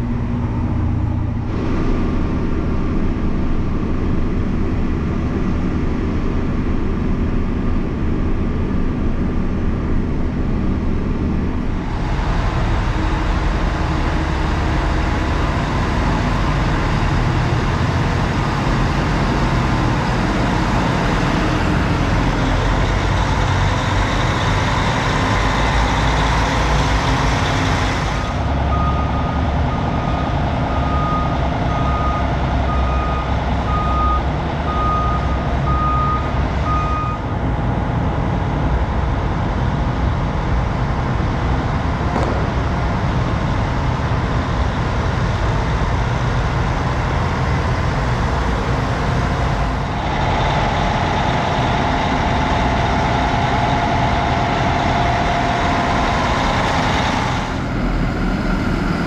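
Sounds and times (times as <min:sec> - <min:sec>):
tractor diesel engines: 0:00.0 - 0:59.0
backup alarm beeping: 0:28.6 - 0:37.3.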